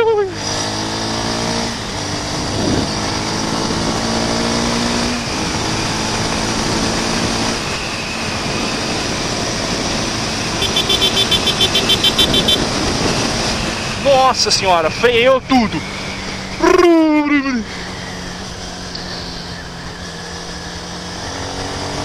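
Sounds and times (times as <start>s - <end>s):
wind rushing over microphone: 1.7s - 10.6s, 11.7s - 16.6s
motorcycle engine running: 5.2s - 14.3s
rapid high-pitched pulsing beep: 10.6s - 12.6s.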